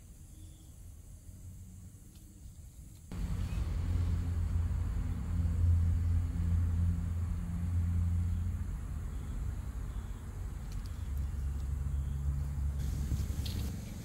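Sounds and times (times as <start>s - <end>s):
faint higher hum: 3.1s - 14.0s
low engine rumble: 3.1s - 14.0s.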